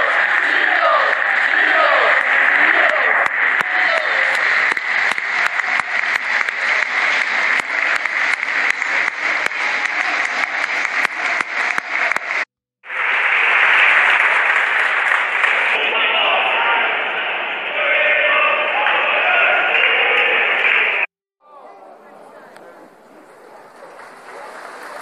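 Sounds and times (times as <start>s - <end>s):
crowd clapping: 0.0s - 15.9s, 18.8s - 21.1s, 23.5s - 25.0s
crowd roar: 0.0s - 25.0s.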